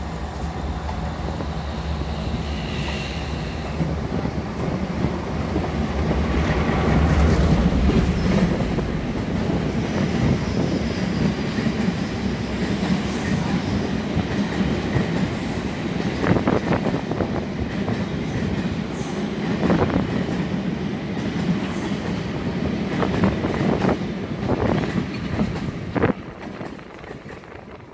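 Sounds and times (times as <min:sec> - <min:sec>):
diesel locomotive engine rumble: 0:00.0 - 0:20.3
train wheels clattering over rail joints: 0:21.1 - 0:27.9.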